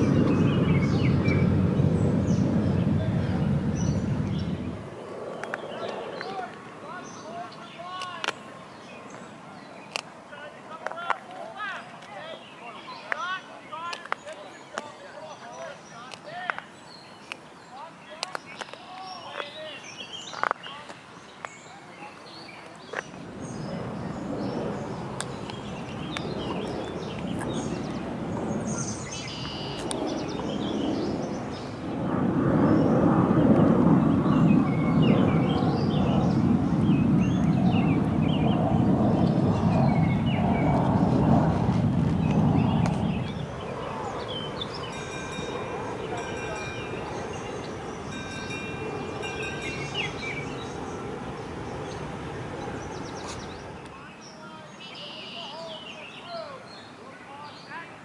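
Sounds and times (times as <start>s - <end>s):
low outdoor rumble: 0.0s - 11.9s, 22.7s - 54.7s
birds chirping: 0.0s - 58.0s.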